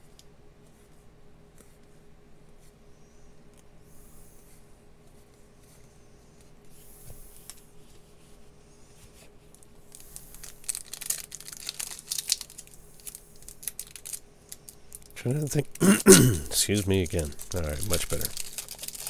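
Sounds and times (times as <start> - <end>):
wrapper tearing and crinkling: 9.9 - 15.8, 16.4 - 19.0.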